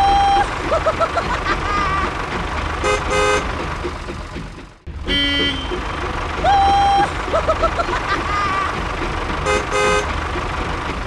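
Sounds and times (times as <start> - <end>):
toy engine rumble: 0.0 - 11.0
toy horn toots: 2.8 - 3.6, 5.0 - 7.1, 9.4 - 10.1.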